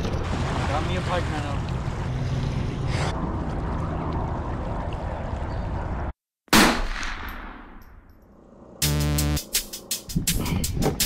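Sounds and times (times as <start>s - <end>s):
river ambience: 0.0s - 6.1s
wind on microphone: 10.1s - 11.0s.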